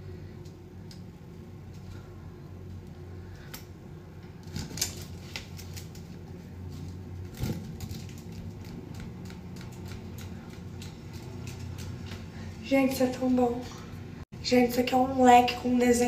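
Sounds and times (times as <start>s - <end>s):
hand fan clicking and rustling: 2.7s - 12.5s.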